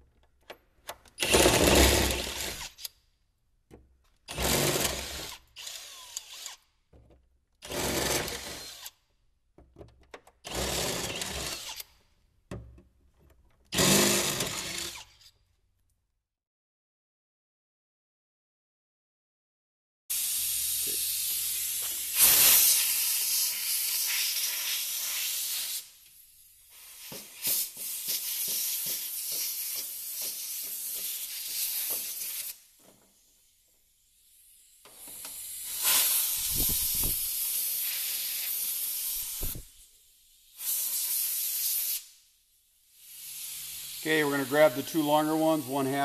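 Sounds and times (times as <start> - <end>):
compressed air blow gun hissing: 20.1 - 26.0, 35.0 - 42.2, 42.9 - 44.8.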